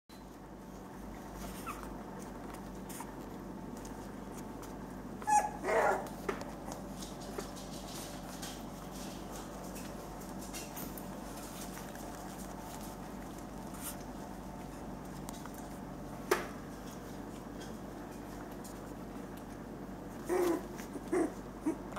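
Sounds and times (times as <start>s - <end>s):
puppies whimpering: 1.3s - 3.4s, 5.2s - 7.6s, 20.1s - 21.9s
puppy yelping: 1.4s - 3.3s, 5.2s - 6.8s, 20.2s - 21.9s.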